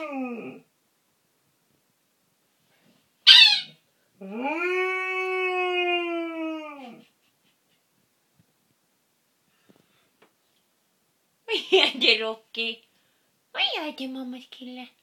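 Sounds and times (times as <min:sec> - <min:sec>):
dog howling: 0:00.0 - 0:00.7, 0:04.2 - 0:07.0.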